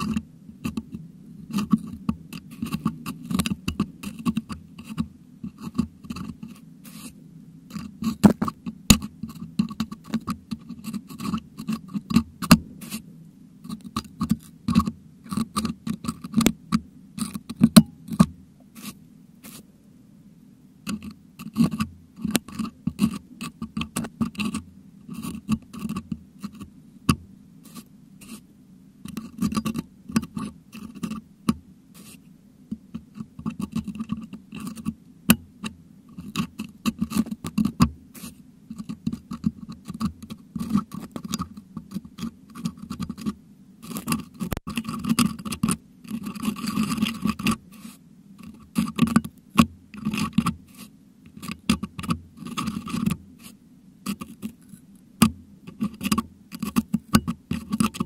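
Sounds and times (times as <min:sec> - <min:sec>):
metal hook scraping microphone grille: 0:36.2 - 0:54.9, 0:55.7 - 0:58.0.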